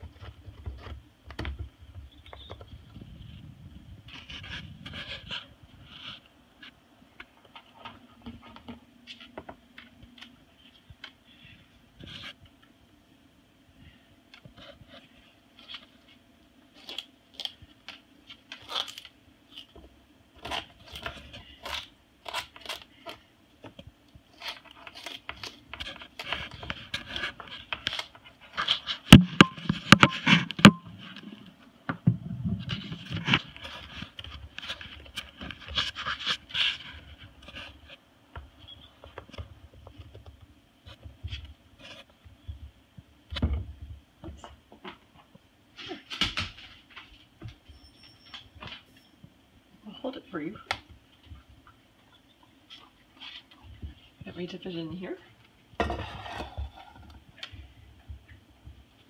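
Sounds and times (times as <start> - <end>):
crunching and cracking of cane: 15.6 - 19.8, 20.4 - 29.2
bird chewing sugarcane: 20.4 - 31.3.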